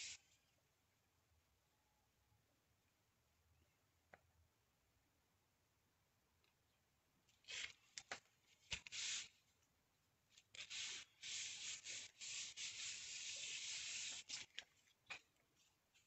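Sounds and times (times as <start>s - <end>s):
hands rubbing paper: 7.5s - 9.4s, 10.4s - 16.0s.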